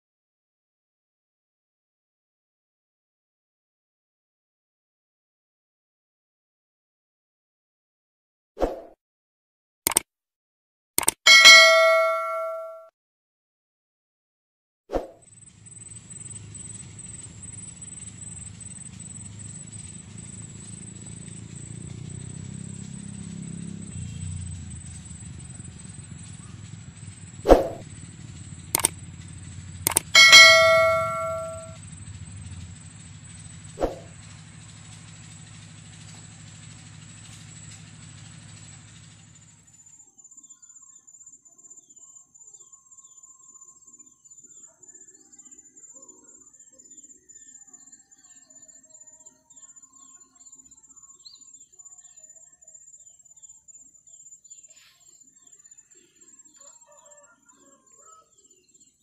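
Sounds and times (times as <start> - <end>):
sharp clicks: 11.0 - 12.6, 28.7 - 29.1, 29.8 - 31.6
bell-like ding: 11.0 - 12.9, 28.8 - 31.8
low hum: 15.2 - 39.8
faint high steady pulsing: 15.3 - 41.2.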